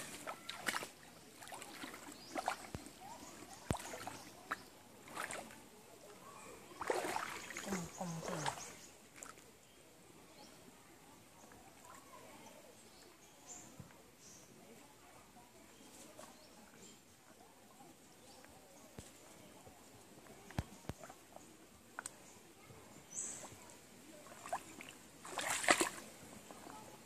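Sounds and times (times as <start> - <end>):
footsteps splashing in a stream: 0.0 - 5.8, 6.6 - 9.6, 23.4 - 27.0.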